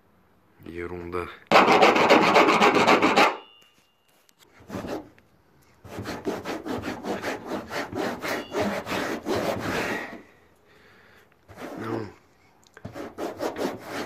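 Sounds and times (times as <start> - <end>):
rubbing on rough coating: 1.5 - 3.4, 4.5 - 5.2, 5.8 - 10.3, 11.5 - 12.2, 12.8 - 14.0.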